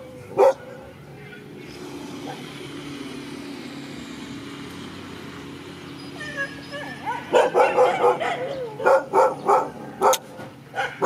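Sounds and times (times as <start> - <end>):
vehicle engine droning: 0.0 - 11.0
dog barking: 0.4 - 0.8, 6.8 - 11.0.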